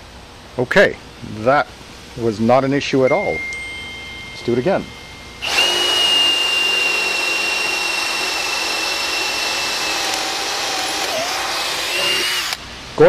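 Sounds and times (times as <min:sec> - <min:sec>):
cordless drill whining: 0:05.4 - 0:12.6.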